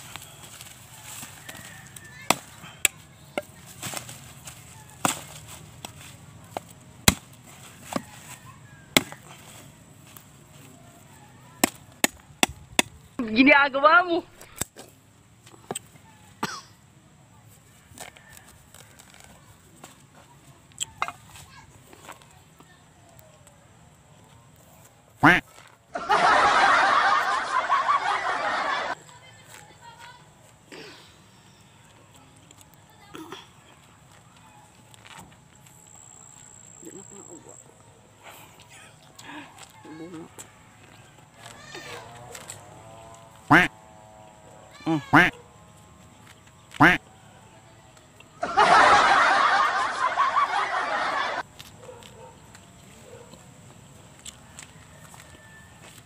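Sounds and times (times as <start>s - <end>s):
machete chopping coconut: 1.6s - 4.1s, 5.0s - 8.2s, 8.9s - 9.4s, 11.6s - 13.0s
crowd laughing: 25.9s - 29.0s, 48.4s - 51.5s.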